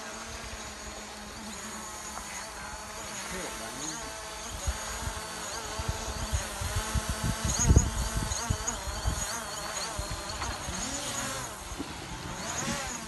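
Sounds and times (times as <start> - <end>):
drone propellers buzzing: 0.0 - 13.0
wind buffeting microphone: 4.5 - 13.0.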